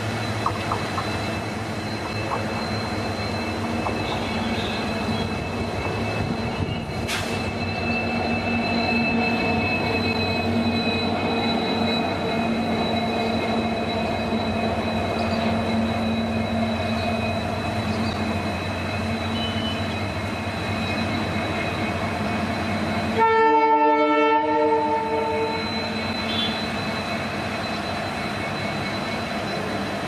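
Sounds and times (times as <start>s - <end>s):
locomotive rumbling past: 0.0s - 30.0s
train horn: 23.2s - 25.7s.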